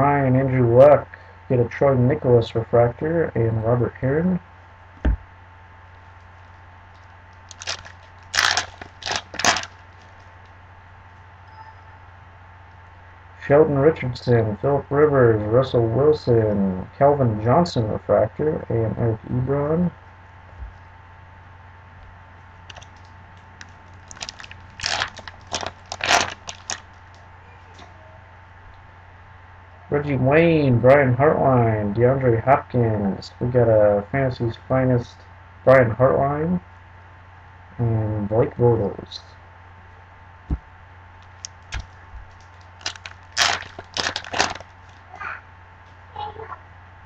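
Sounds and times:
plastic wrapper crinkling and tearing: 7.4 - 10.6, 22.7 - 27.2, 41.3 - 45.0.

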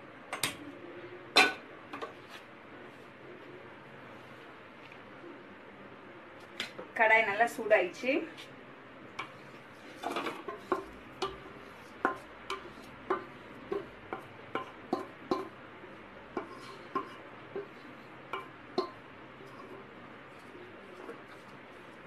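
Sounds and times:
spatula clinking on metal bowl: 10.7 - 11.4, 18.3 - 19.0.

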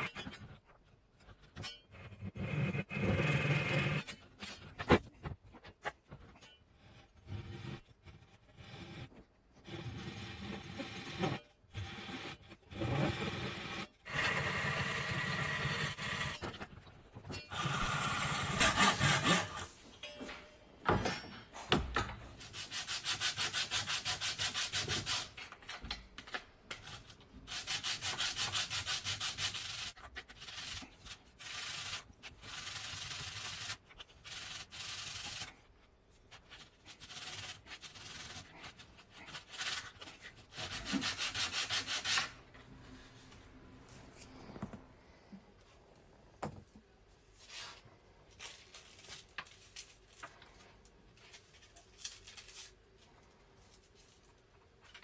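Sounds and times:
wood sanding on sandpaper: 22.4 - 25.3, 27.5 - 35.5, 36.9 - 42.4.

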